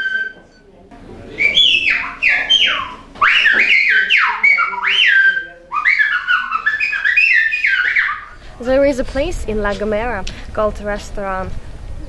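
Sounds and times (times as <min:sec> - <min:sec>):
finger whistling sliding notes: 0:00.0 - 0:00.6, 0:01.3 - 0:08.3.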